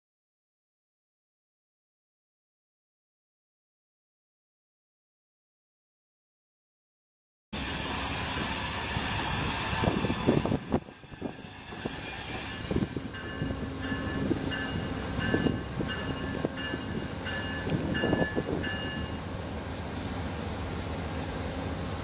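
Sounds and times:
train rushing and rumbling: 7.6s - 22.0s
locomotive bell ringing: 12.4s - 19.3s.

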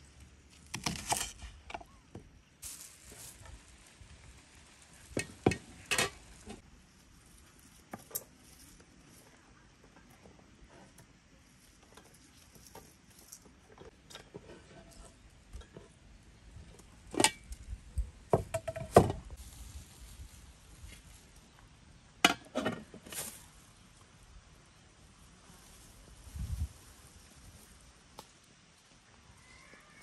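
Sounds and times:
objects knocking and clattering: 18.3s - 19.2s.

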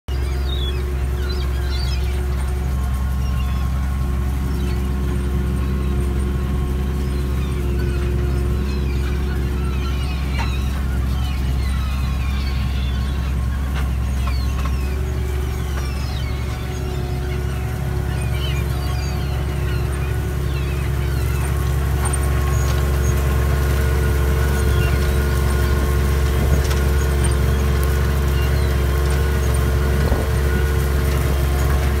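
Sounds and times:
tractor diesel engine drone: 0.0s - 32.0s.

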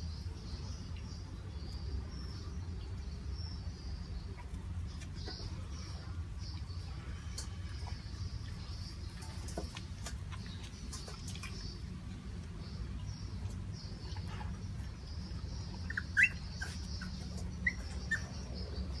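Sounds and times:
puppies squeaking: 15.8s - 18.6s.

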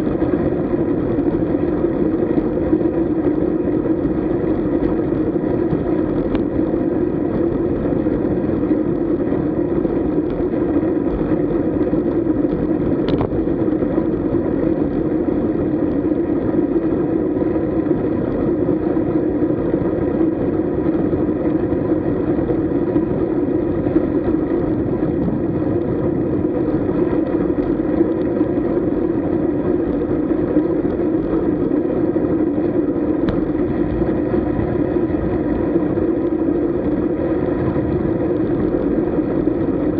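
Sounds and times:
wind and road rumble: 0.0s - 39.9s.

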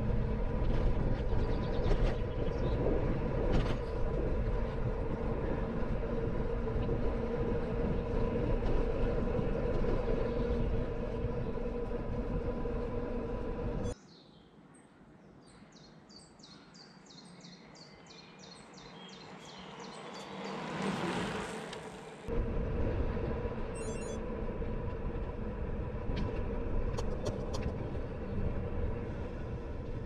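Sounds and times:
train rumbling: 0.0s - 14.0s, 20.8s - 30.0s.

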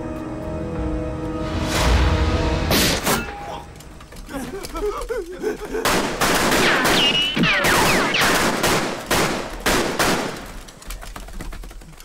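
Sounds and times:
rifle and machine-gun fire: 5.8s - 10.7s
bullets whistling: 6.5s - 9.3s.

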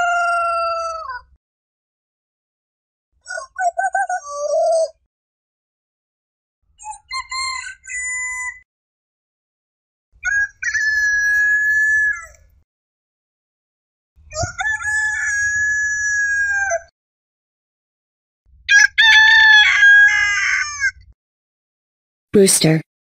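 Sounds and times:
rooster crowing: 0.0s - 1.3s, 7.1s - 8.6s, 10.2s - 12.4s, 14.4s - 16.9s, 18.7s - 21.0s.

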